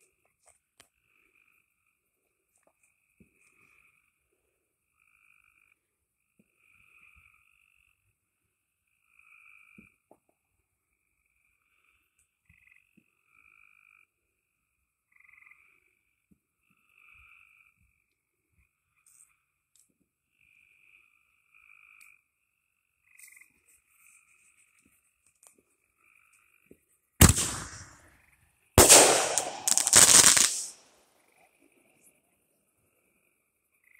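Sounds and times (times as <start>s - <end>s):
frogs trilling: 4.9s - 8.0s, 8.9s - 10.0s, 10.9s - 19.6s, 20.3s - 24.9s, 25.7s - 26.7s, 33.0s - 33.9s.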